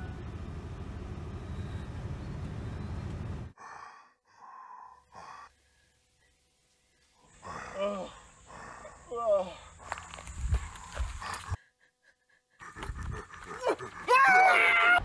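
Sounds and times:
car engine rumbling: 0.0 - 3.6.

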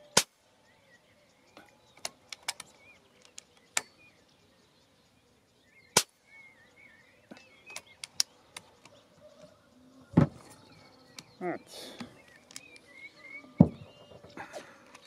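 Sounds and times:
small birds chirping: 0.0 - 15.0
faint clicks: 1.6 - 3.9.

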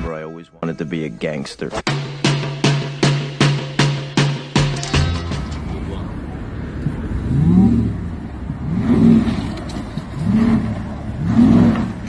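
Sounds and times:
pickup truck engine revving: 5.7 - 12.0.

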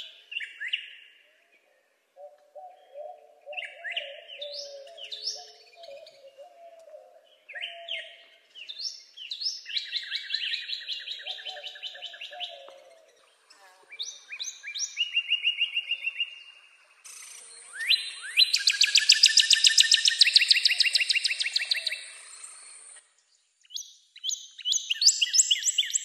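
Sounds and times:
bird whistles and trills: 17.2 - 23.0, 23.7 - 26.0.

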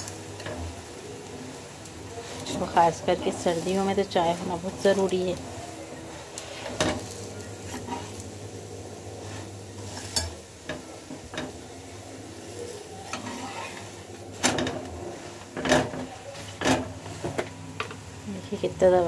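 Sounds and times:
faint sizzling: 0.0 - 19.0
metal spatula scraping griddle: 2.1 - 17.4.

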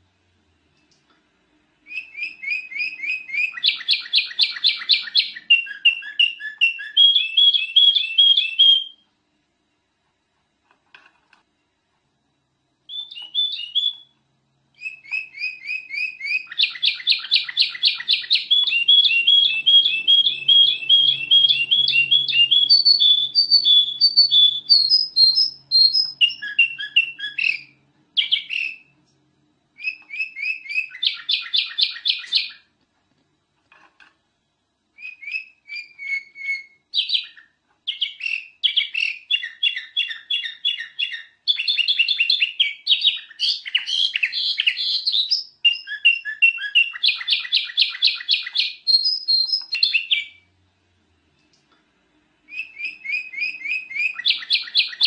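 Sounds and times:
bulbul chirping song: 1.8 - 9.0, 12.9 - 14.2, 14.8 - 29.0, 29.8 - 32.7, 35.0 - 50.5, 52.4 - 55.0.

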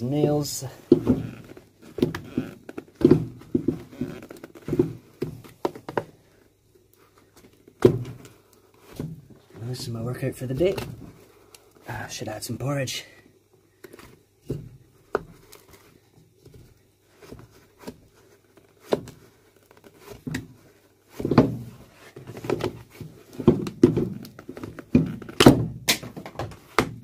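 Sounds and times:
blade knocking and scraping on heel: 0.8 - 6.1, 18.8 - 27.0.

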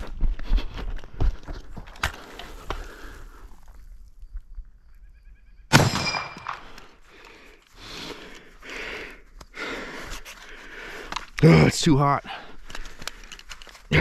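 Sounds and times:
sharp metallic clang: 5.8 - 6.6.

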